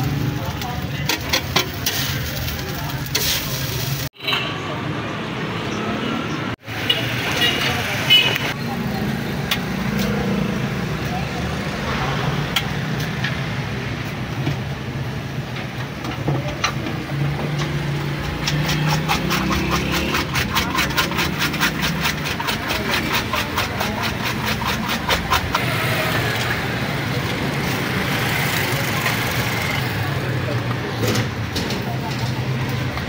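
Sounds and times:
street traffic hum: 0.0s - 33.0s
whisk beating eggs in metal bowl: 18.9s - 25.6s.

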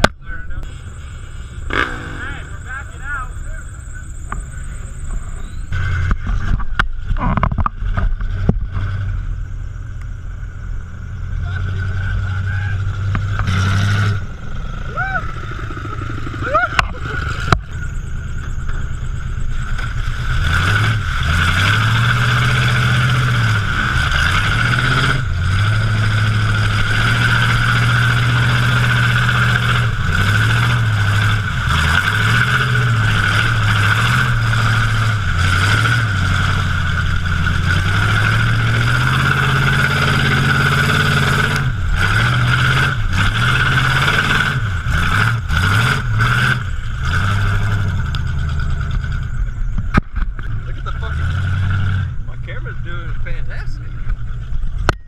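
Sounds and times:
truck engine revving: 0.0s - 55.0s
tyres churning mud: 19.6s - 49.3s.

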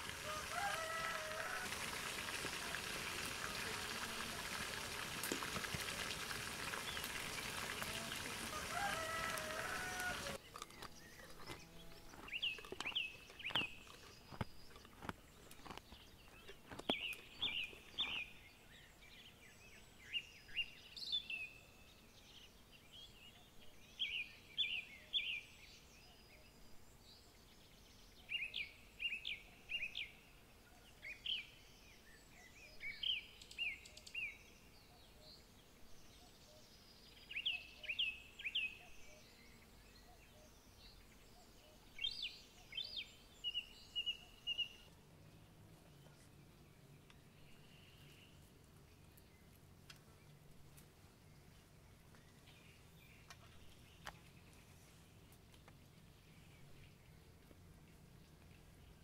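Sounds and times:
hens calling: 0.0s - 5.2s, 6.4s - 10.4s
small birds singing: 6.5s - 59.0s.

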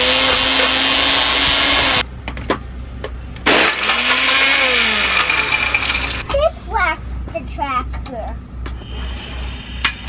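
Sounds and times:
electric blender running: 0.0s - 2.0s, 3.8s - 6.2s.

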